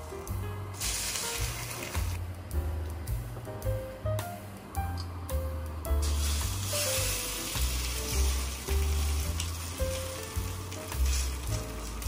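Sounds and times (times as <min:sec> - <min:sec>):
bread sizzling in a pan: 0:00.0 - 0:02.2, 0:06.0 - 0:12.0
soft background music: 0:00.0 - 0:12.0.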